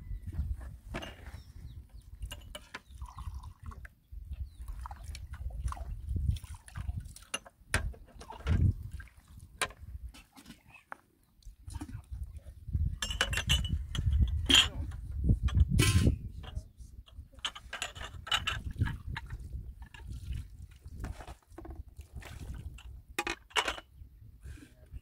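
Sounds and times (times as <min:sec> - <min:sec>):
metal kettles clinking: 0:02.2 - 0:03.4, 0:12.9 - 0:20.1, 0:22.7 - 0:23.9
water splashing in a basin: 0:04.6 - 0:07.5, 0:08.2 - 0:09.5, 0:18.6 - 0:22.9.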